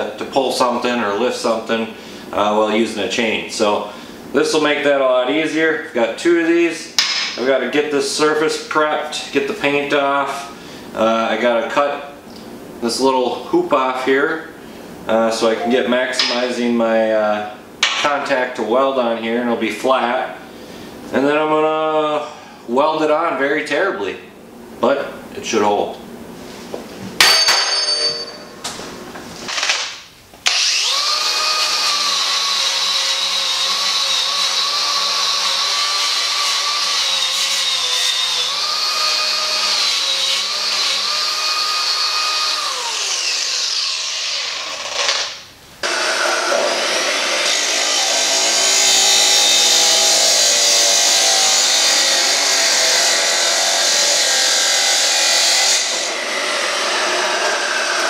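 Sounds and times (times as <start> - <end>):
chop saw cutting steel: 29.5 - 58.0
angle grinder grinding metal: 30.5 - 58.0.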